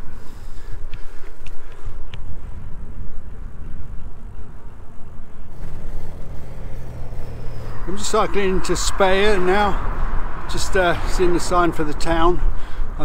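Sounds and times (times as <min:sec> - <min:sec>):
wind buffeting microphone: 0:00.0 - 0:13.0
bicycle tyre noise on pavement: 0:05.5 - 0:11.4.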